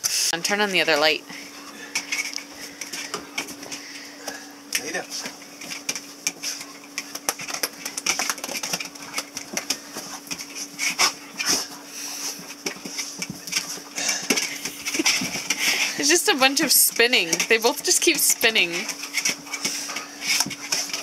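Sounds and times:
dogs scuffling: 0.0s - 21.0s
dog claws clicking on hard floor: 5.2s - 11.6s.

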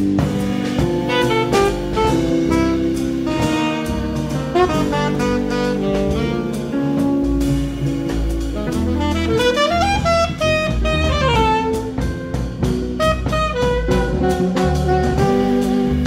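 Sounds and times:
instrumental music with drums: 0.0s - 16.0s.

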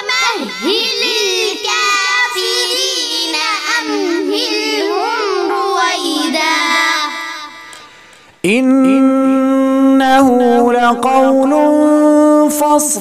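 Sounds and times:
child chanting recitation: 0.0s - 7.9s.

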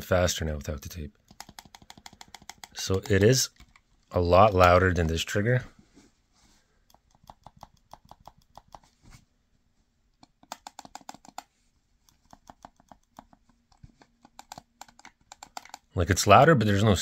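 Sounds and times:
controller trigger clicking: 1.2s - 3.8s.

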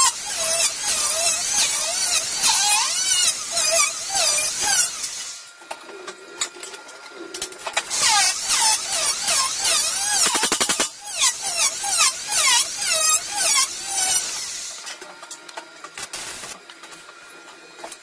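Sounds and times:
angle grinder grinding metal: 0.0s - 5.4s, 7.8s - 14.8s, 16.0s - 16.6s.

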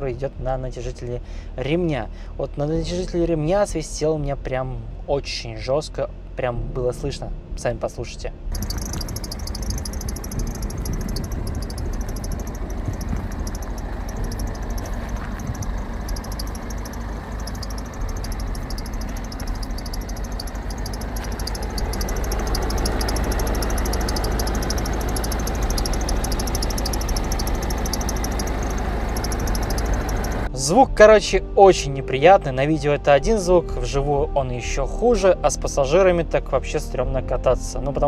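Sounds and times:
car engine idling: 8.5s - 30.5s
high pulsing belt whistle: 8.5s - 30.5s.

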